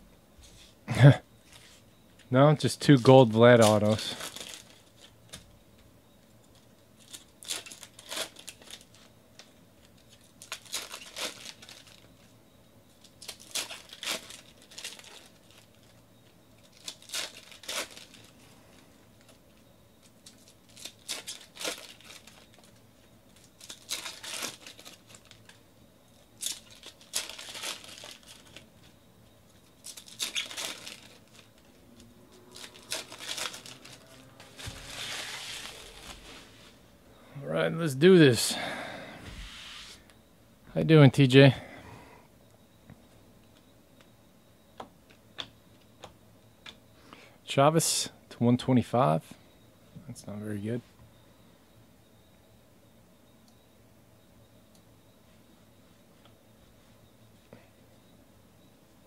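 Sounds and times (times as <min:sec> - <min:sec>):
foil wrapper crinkling: 0:03.1 - 0:05.3, 0:06.5 - 0:12.3, 0:13.0 - 0:16.0, 0:16.6 - 0:18.4, 0:20.0 - 0:25.6, 0:26.4 - 0:28.9, 0:29.6 - 0:36.6
cards rustling and slapping: 0:32.6 - 0:36.5.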